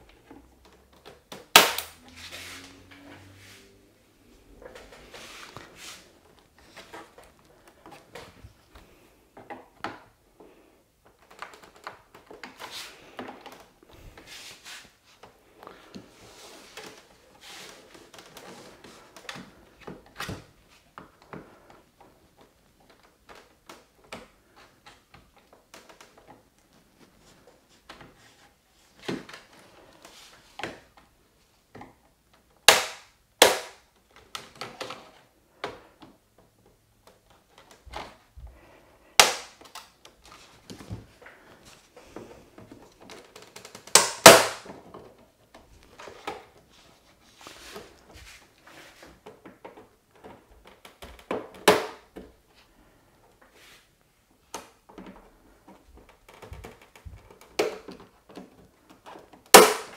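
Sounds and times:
small clicks and creaks: 0:05.6 - 0:14.0, 0:21.1 - 0:32.5, 0:39.6 - 0:44.0, 0:54.4 - 0:59.4.

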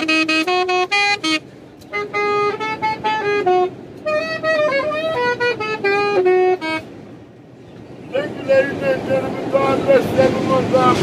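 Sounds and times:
saxophone playing short notes: 0:00.0 - 0:06.9.

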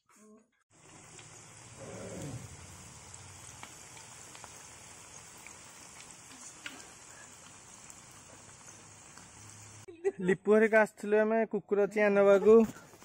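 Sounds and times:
food sizzling in hot oil: 0:00.7 - 0:09.9.

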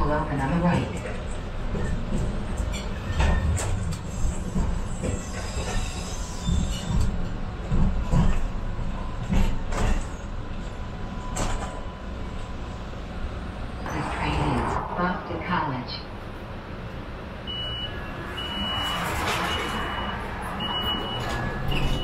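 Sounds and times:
light-rail car rumbling on tracks: 0:00.0 - 0:22.0
faint wheel squeal: 0:04.1 - 0:07.1.

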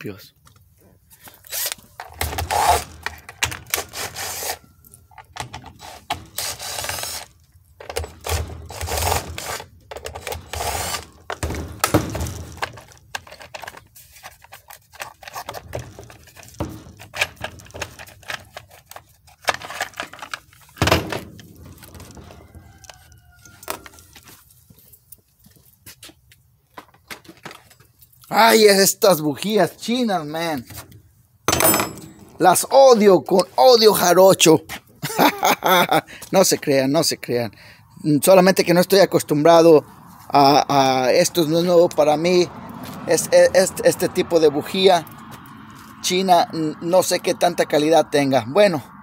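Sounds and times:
impact driver backing out screws: 0:01.4 - 0:13.8
plastic cover and tools clunking: 0:11.2 - 0:23.0.

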